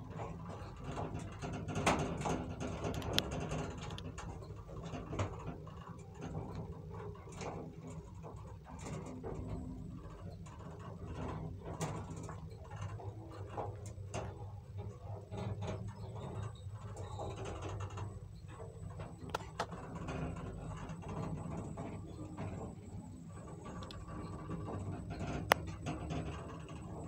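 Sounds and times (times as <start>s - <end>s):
elevator car rattling: 0.0s - 27.0s
elevator hum: 18.6s - 27.0s.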